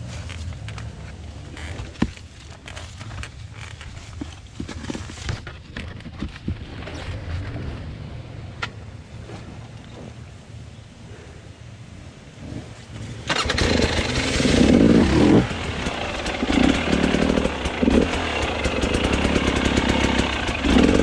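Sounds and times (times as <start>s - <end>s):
knocks and scrapes against rock: 0.1s - 7.8s
dirt bike engine idling: 13.4s - 21.0s.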